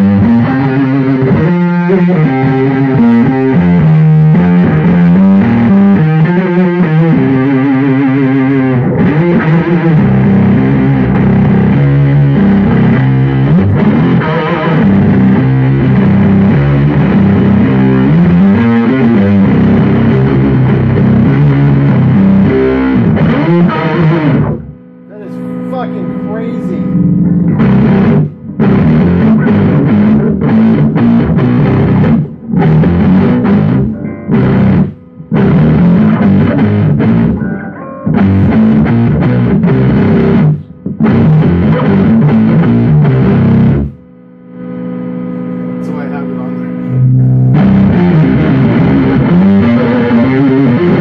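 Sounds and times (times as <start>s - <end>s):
fuzzed electric guitar riffs: 0.0s - 51.0s.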